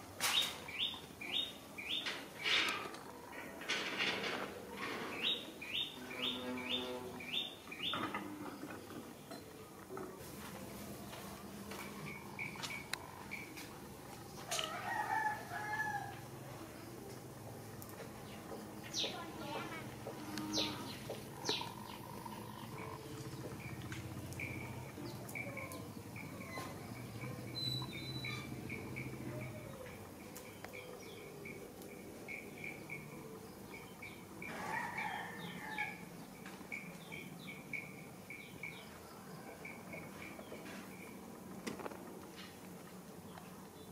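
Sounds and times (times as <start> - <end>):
small animal high chirps: 27.6 - 28.5.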